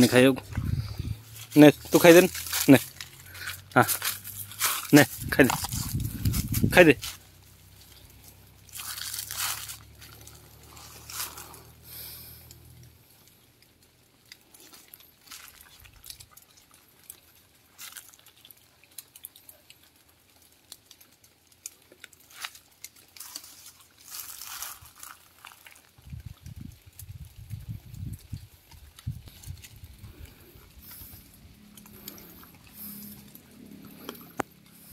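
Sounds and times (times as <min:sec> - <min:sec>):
low hum: 0:00.0 - 0:13.2
dogs crunching food: 0:00.0 - 0:34.9
rustling dry leaves: 0:00.0 - 0:34.9.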